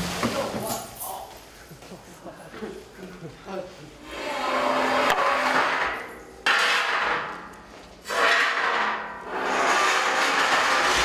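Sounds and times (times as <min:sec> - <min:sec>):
scraping over a hard surface: 0:08.0 - 0:11.0.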